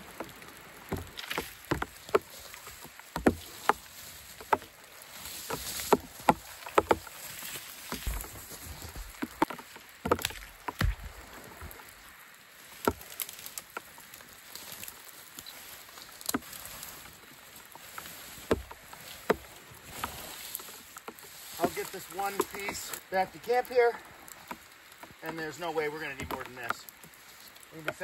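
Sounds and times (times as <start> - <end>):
branches cracking and snapping: 0.0 - 28.0
pole scraping through brush: 0.9 - 28.0.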